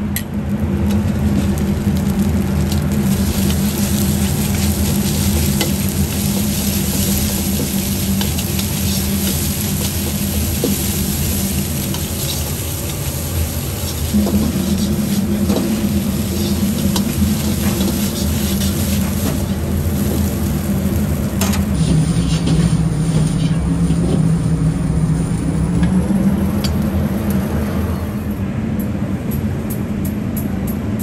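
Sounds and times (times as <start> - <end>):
rice sizzling in a wok: 0.0 - 27.4
gas burner roaring: 0.0 - 31.0.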